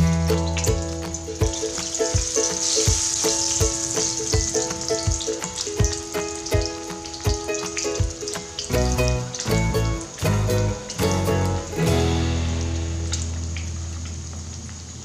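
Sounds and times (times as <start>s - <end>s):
background music with beat: 0.0s - 13.3s
fish sizzling in oil: 1.6s - 7.8s, 11.9s - 15.0s.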